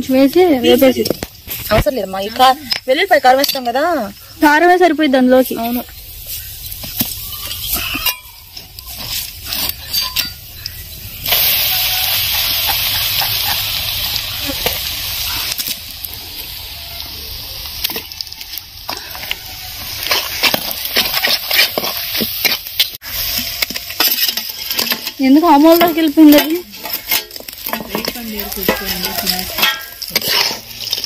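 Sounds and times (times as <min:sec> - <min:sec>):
fish sizzling in hot oil: 0:05.4 - 0:31.0
clinks and scrapes against pan: 0:06.3 - 0:10.8, 0:17.8 - 0:31.0.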